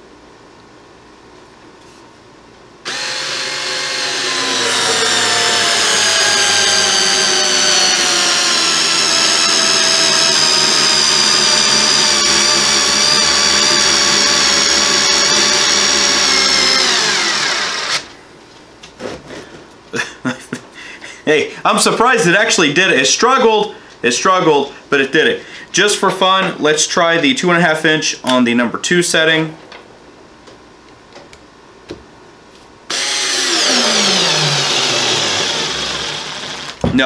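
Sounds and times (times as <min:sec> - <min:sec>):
cordless screwdriver motor whining: 0:02.9 - 0:18.1, 0:32.9 - 0:36.8.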